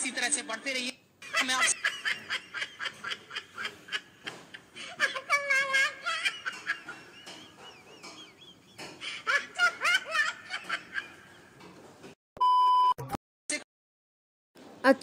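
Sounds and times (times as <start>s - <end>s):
high-pitched laughing and squealing: 4.8s - 6.9s
test-tone beep: 12.4s - 13.2s.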